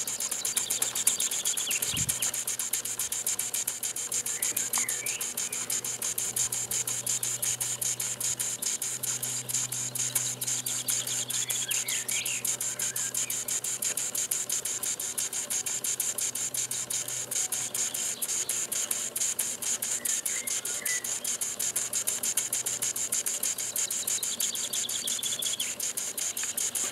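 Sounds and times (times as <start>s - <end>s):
steam engine chuffing: 0.0s - 26.9s.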